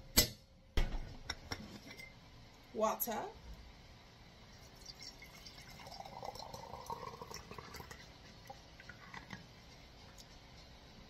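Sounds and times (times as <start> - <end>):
water pouring into metal pot: 4.6 - 9.3.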